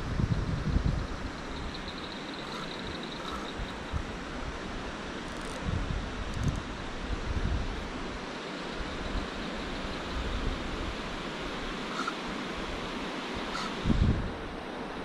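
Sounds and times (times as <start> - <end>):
wind buffeting microphone: 0.0 - 4.6, 5.6 - 7.8, 13.5 - 14.6
steady hiss of night air: 0.0 - 15.0.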